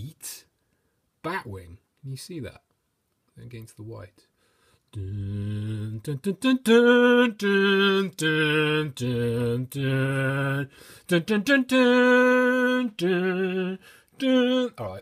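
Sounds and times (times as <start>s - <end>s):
man singing unaccompanied: 4.9s - 15.0s.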